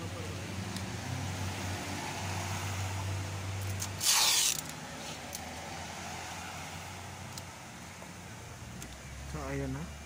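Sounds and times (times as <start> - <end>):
tape pulled off roll: 3.7 - 5.2.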